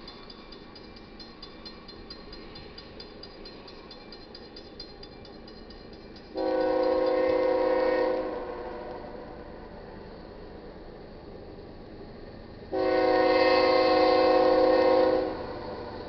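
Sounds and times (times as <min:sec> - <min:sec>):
crossing bell ringing rapidly: 0:00.0 - 0:07.4
locomotive air horn chord: 0:06.4 - 0:09.4, 0:12.7 - 0:16.0.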